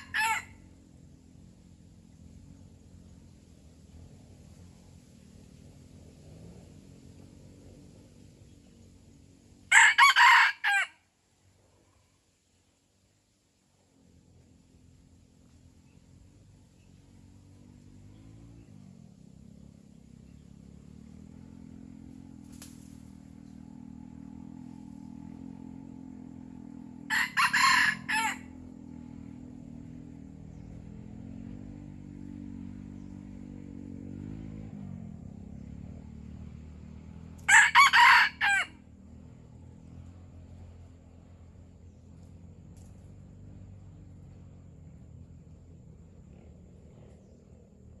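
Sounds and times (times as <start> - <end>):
rooster crowing: 0.0 - 0.6, 9.7 - 11.0, 27.1 - 28.6, 37.5 - 38.9
low steady hum: 0.0 - 48.0.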